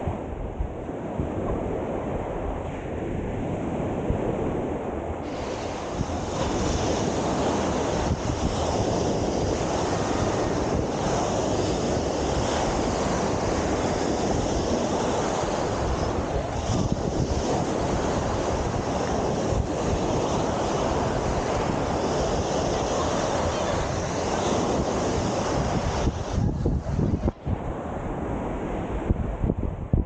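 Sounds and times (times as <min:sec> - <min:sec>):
wind rumbling on microphone: 0:00.0 - 0:30.0
small waves breaking on sand: 0:03.2 - 0:29.1.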